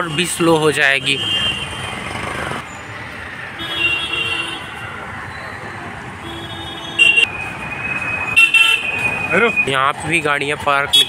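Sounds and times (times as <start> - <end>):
road traffic passing: 0.0 - 11.0
vehicle horn: 6.2 - 7.3.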